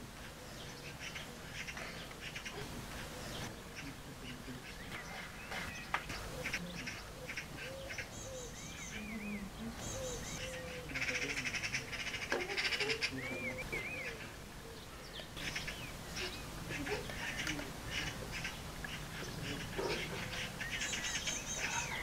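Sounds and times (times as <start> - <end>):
magpies chattering: 0.0 - 22.0
birds whistling: 0.2 - 22.0.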